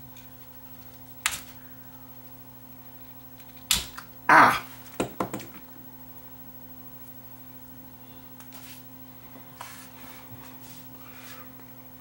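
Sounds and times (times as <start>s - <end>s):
low electrical hum: 0.0s - 12.0s
motor knocking on workbench: 5.0s - 5.6s.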